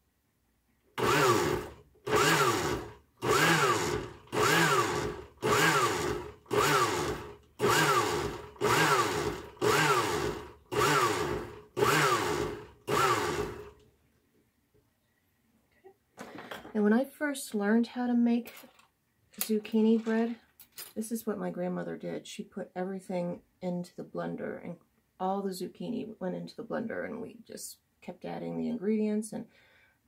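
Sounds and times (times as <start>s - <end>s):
blender pulsing: 1.0s - 13.8s.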